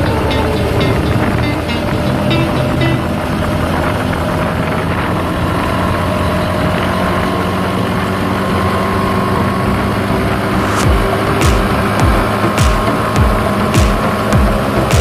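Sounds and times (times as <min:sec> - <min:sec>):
aircraft engine and propeller running: 0:00.0 - 0:14.9.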